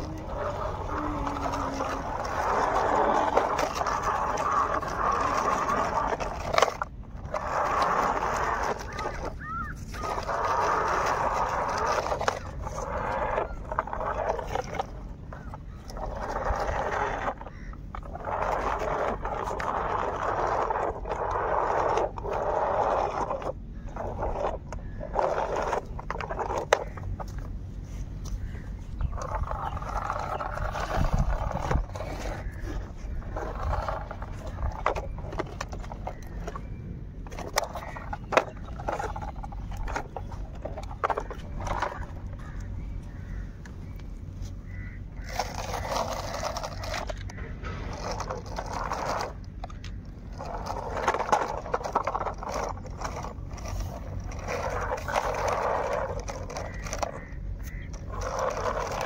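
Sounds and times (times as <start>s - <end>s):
toy wheels scraping over dirt: 0.0s - 59.0s.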